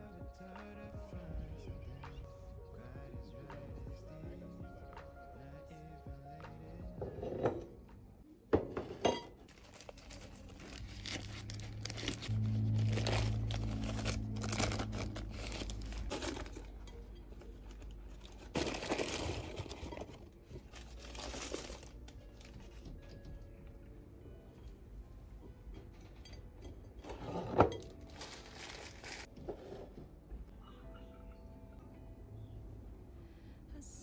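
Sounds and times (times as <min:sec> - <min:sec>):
paper bag crinkling: 0:09.5 - 0:22.8, 0:27.7 - 0:29.3
low hum: 0:09.6 - 0:29.2, 0:30.1 - 0:34.0.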